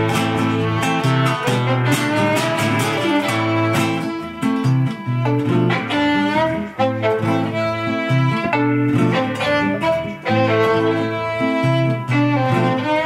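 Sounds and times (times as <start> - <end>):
classical guitar accompaniment: 0.0 - 13.0
violin bowed melody: 0.0 - 13.0.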